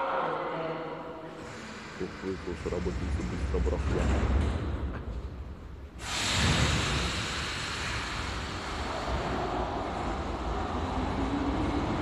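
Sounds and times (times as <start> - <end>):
train running noise: 1.4 - 12.0
train hissing: 6.0 - 12.0.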